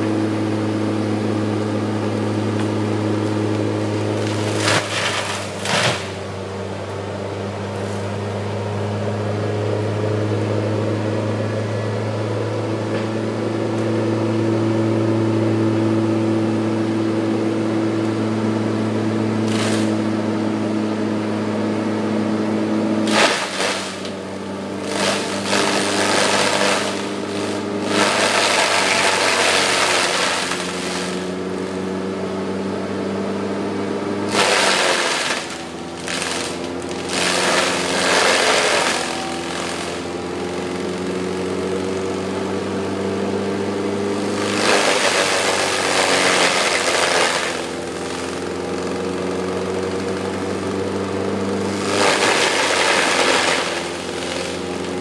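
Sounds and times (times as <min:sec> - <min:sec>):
diesel engine running: 0:00.0 - 0:55.0
crackling and splintering wood: 0:02.5 - 0:07.0, 0:19.4 - 0:20.1, 0:23.0 - 0:31.4, 0:34.3 - 0:40.2, 0:44.0 - 0:50.7, 0:51.6 - 0:55.0.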